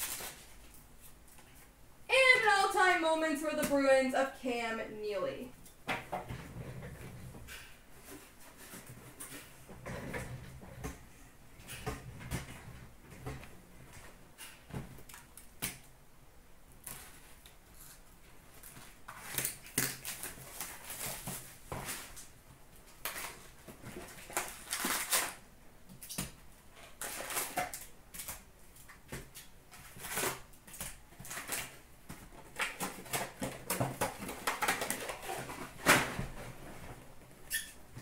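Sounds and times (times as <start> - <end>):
foil packs crinkling: 0.0 - 1.0, 18.6 - 22.3, 22.9 - 25.4, 26.9 - 36.6.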